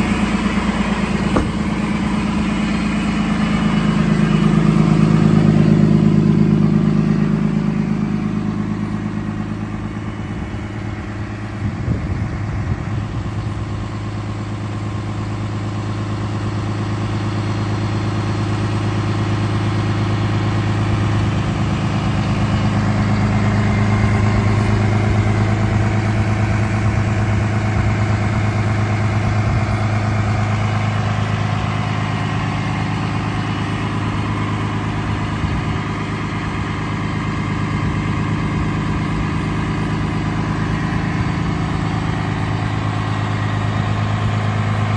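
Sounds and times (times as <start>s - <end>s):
truck engine idling: 0.0s - 44.9s
brief knocks: 1.3s - 1.9s.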